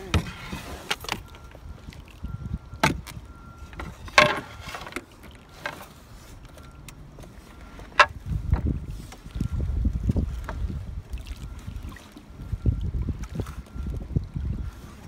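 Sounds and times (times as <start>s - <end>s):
wind rumble on microphone: 0.0s - 4.8s, 7.9s - 15.0s.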